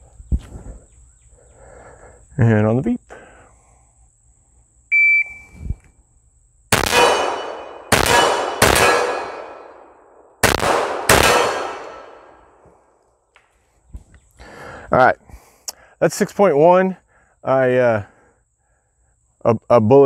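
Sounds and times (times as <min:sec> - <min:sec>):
shot timer beep: 0:04.9 - 0:05.6
pistol shots ringing: 0:06.7 - 0:12.4.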